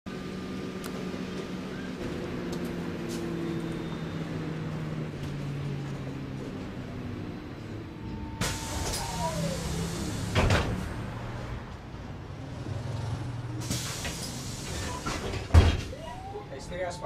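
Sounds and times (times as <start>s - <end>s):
bus engine humming: 0.1s - 17.0s
air hiss: 13.6s - 15.0s
heavy thumps of bus doors: 13.9s - 16.0s.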